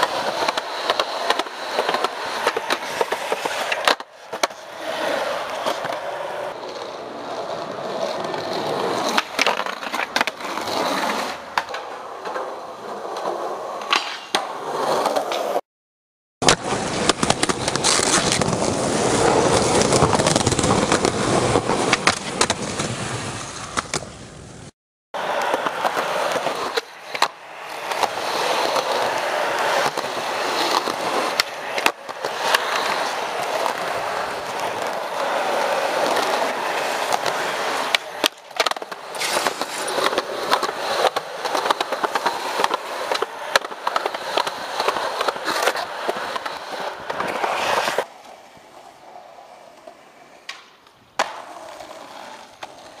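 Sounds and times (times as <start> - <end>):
skateboard clacking on ground: 0.0 - 15.6, 16.4 - 24.3, 25.2 - 53.0
skateboard wheels rolling on concrete: 0.0 - 15.6, 16.4 - 53.0.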